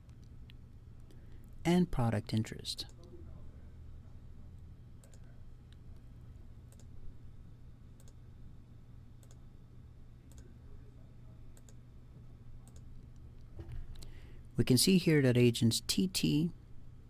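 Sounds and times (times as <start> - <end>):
faint low hum: 0.0 - 17.0
computer mouse clicking: 5.0 - 5.3, 6.7 - 6.9, 8.0 - 8.2, 9.2 - 9.4, 10.3 - 10.5, 11.6 - 11.8, 12.6 - 13.2.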